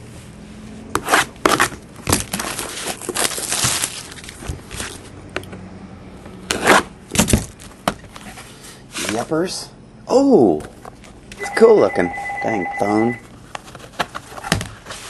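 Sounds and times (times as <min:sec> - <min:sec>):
plastic wrap crackling and tearing: 0:01.2 - 0:05.1.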